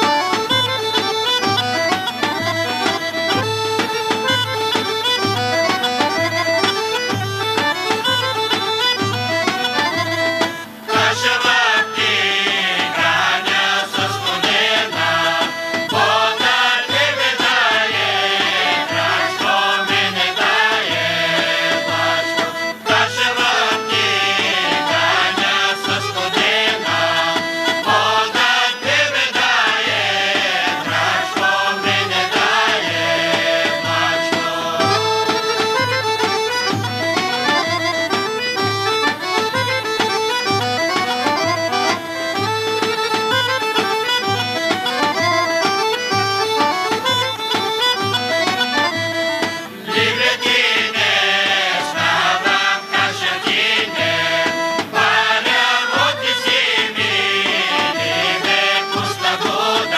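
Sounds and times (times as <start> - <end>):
drum beat: 0.0 - 45.6, 46.2 - 59.9
accordion: 0.0 - 59.9
bagpipe: 0.0 - 59.9
women singing together: 10.9 - 35.4, 49.8 - 59.9.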